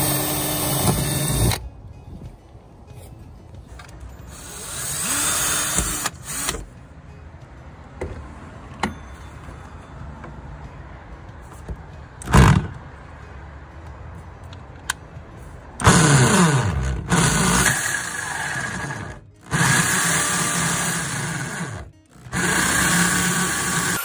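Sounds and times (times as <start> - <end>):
electric drill with hole saw: 0.0 - 1.6, 4.4 - 6.6, 15.8 - 24.0.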